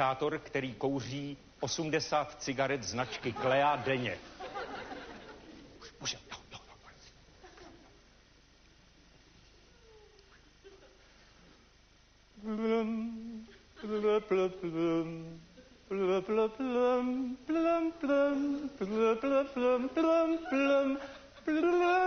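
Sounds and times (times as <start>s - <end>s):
person humming: 12.4s - 22.0s.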